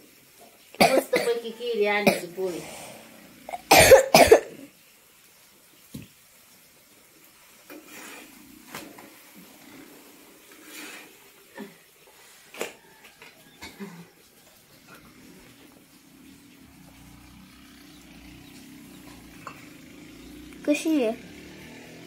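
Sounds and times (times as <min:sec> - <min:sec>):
person coughing: 0:03.5 - 0:04.7.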